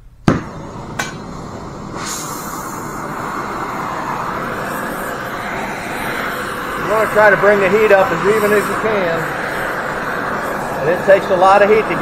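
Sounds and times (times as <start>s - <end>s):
gas torch igniting pop: 0.2s - 3.0s
torch flame hissing: 0.2s - 12.0s.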